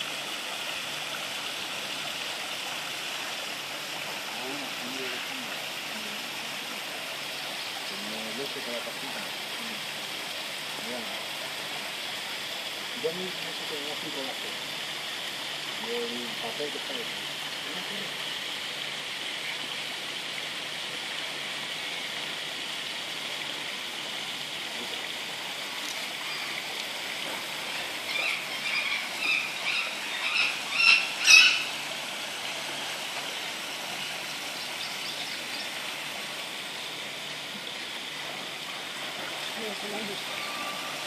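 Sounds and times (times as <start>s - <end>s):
running water: 0.0s - 41.0s
short high calls: 28.1s - 31.7s, 40.2s - 41.0s.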